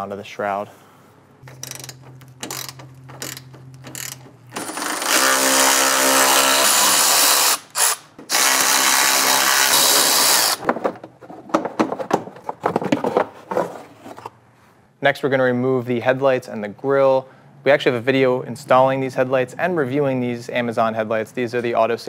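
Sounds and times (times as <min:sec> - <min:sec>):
hand ratchet clicking: 0:01.4 - 0:10.6
electric ratchet spinning: 0:01.5 - 0:10.6.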